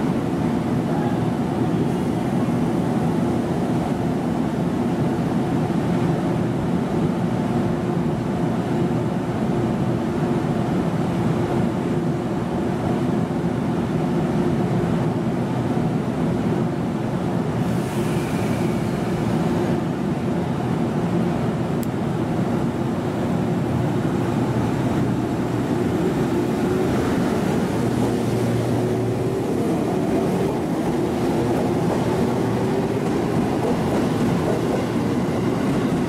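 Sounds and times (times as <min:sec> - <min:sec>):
train equipment humming: 0:17.5 - 0:36.0.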